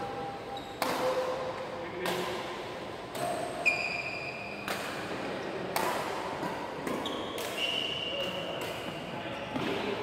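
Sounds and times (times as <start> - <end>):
shoe squeaking on wooden court: 0.5 - 0.8, 3.6 - 4.6, 6.9 - 8.2
racket hitting shuttlecock: 0.7 - 3.8, 4.6 - 9.9.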